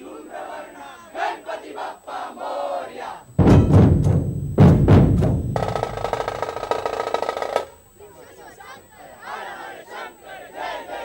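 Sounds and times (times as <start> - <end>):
voices shouting together: 0.0 - 3.8, 5.7 - 11.0
booming drum strokes: 3.3 - 7.7
fast drum roll: 3.4 - 7.9.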